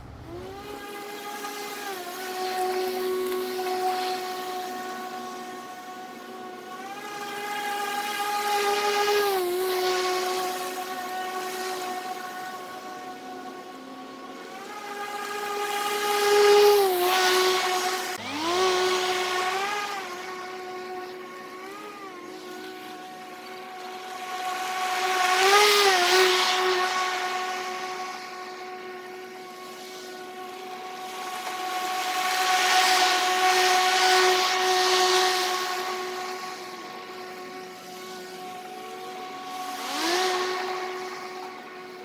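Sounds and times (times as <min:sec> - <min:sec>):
electric lawn mower whine: 0:00.0 - 0:42.0
grass being cut hiss: 0:14.2 - 0:42.0.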